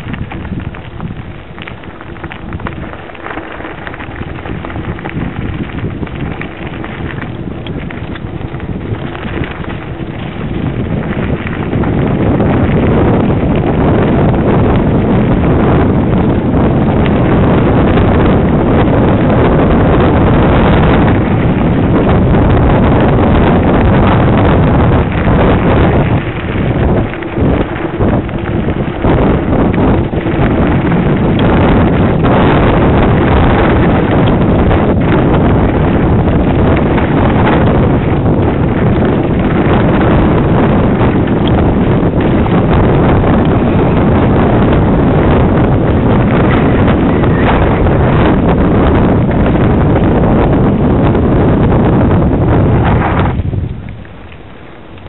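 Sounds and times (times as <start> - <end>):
small clicks and rattles: 0.0 - 14.2
bike tyres crunching on gravel: 0.0 - 55.0
wind noise on microphone: 0.0 - 55.0.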